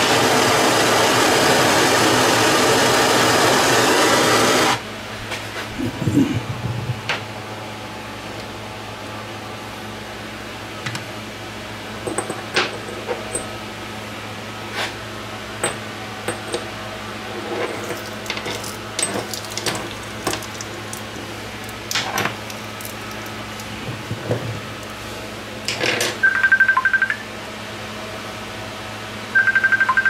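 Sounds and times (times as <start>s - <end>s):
steady low hum: 4.8s - 29.5s
phone ringing with rapid beeps: 26.2s - 27.3s, 29.4s - 30.0s.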